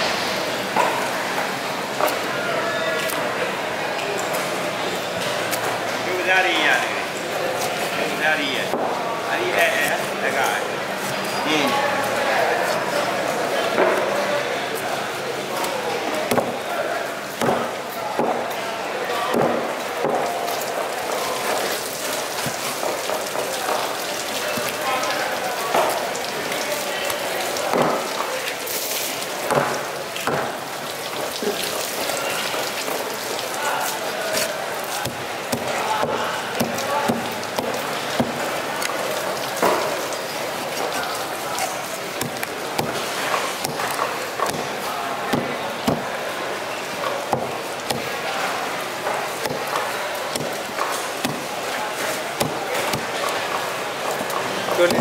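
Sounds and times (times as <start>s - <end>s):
background noise: 0.0s - 55.0s
cleaver chopping on wooden block: 19.3s - 20.2s, 42.2s - 44.7s, 52.4s - 53.4s.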